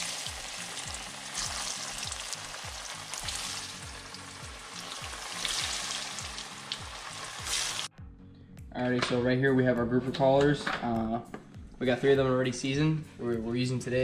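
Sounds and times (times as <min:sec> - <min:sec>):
fish deep-frying in oil: 0:00.0 - 0:07.9.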